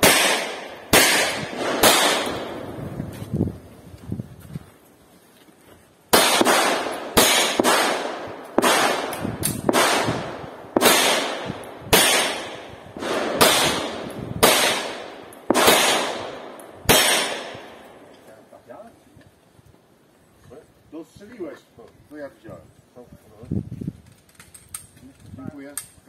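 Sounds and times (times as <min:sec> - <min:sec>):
pistol shots echoing: 0:00.0 - 0:02.8, 0:06.1 - 0:18.0.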